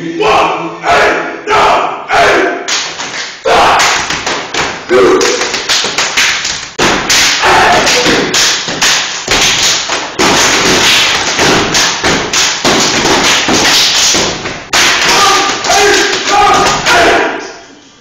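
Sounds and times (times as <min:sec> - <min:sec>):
clapping and body slapping: 0:02.7 - 0:17.0
feet stomping on hard floor: 0:03.9 - 0:16.8.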